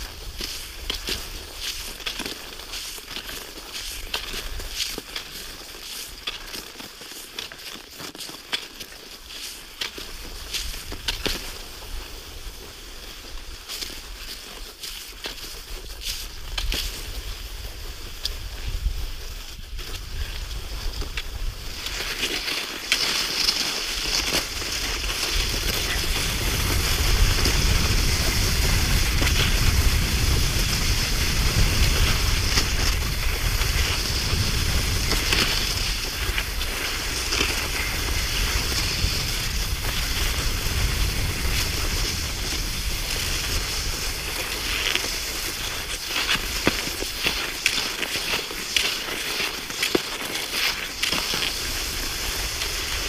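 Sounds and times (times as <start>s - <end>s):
small crunching clicks: 0.0s - 11.5s, 19.8s - 29.9s, 31.9s - 53.0s
wind buffeting microphone: 25.0s - 44.8s.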